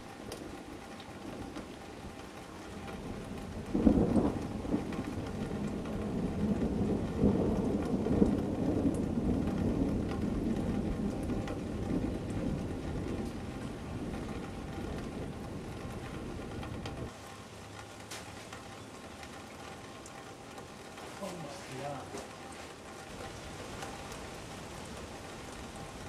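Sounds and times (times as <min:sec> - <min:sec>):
rain falling: 0:00.0 - 0:26.0
thunder clap and rumble: 0:02.7 - 0:17.1.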